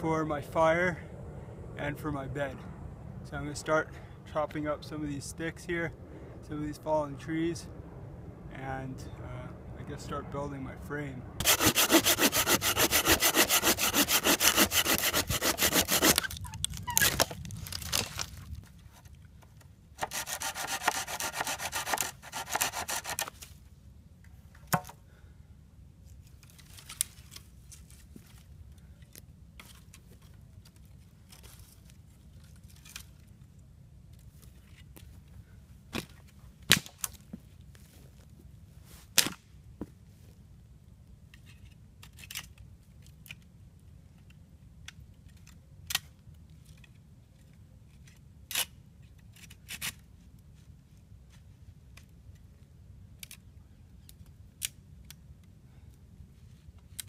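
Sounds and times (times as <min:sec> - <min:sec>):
hand saw cutting wood: 0:11.4 - 0:16.3, 0:20.0 - 0:23.4.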